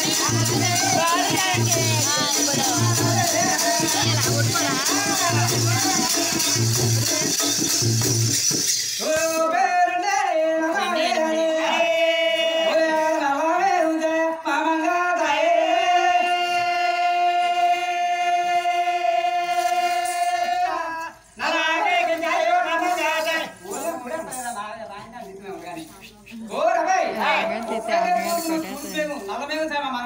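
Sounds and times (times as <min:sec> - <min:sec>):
high voice singing: 0:00.0 - 0:07.6
music with shaker rhythm: 0:00.0 - 0:15.4, 0:16.3 - 0:29.8.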